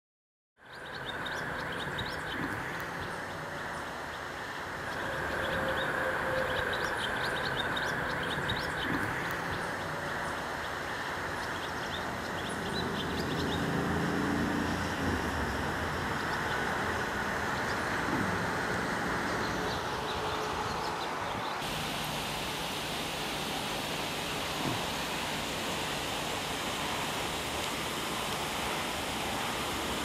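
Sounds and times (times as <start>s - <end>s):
road traffic hiss: 0.6s - 30.0s
small birds chirping: 0.7s - 13.8s
vehicle engine hum: 0.8s - 30.0s.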